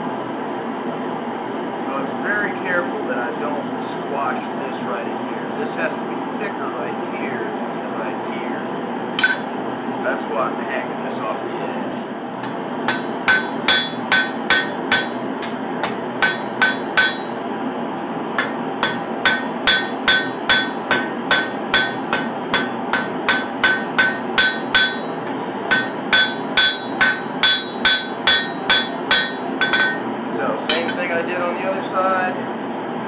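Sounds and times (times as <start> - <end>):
hammer ringing on steel anvil: 9.2 - 9.5, 12.9 - 17.4, 18.4 - 30.1, 30.7 - 31.1.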